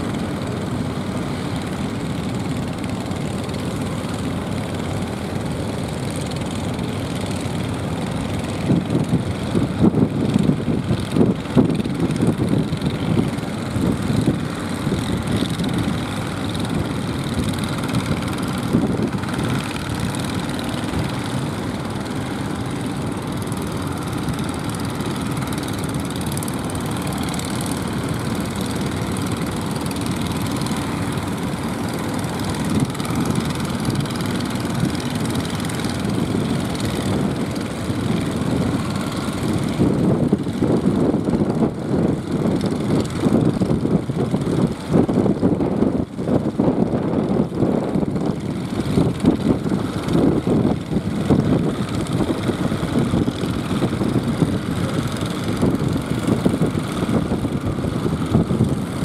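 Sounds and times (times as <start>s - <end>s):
fishing boat engines running: 0.0s - 59.0s.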